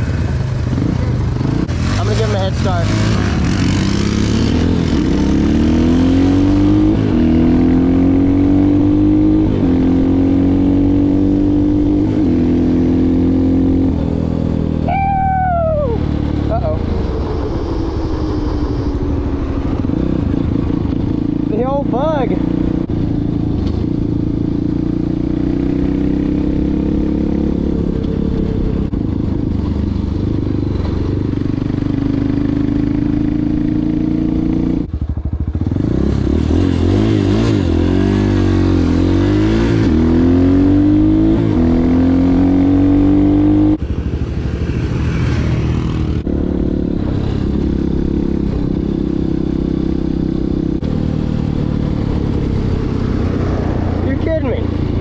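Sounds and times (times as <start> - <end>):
dirt bike engine running: 0.0 - 12.8, 19.2 - 55.0
wind rush: 13.9 - 21.6.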